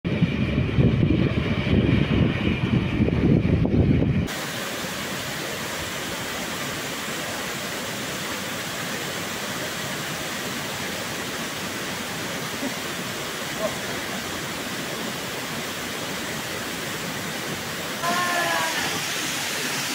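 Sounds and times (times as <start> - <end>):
waterfall rushing: 4.3 - 19.9.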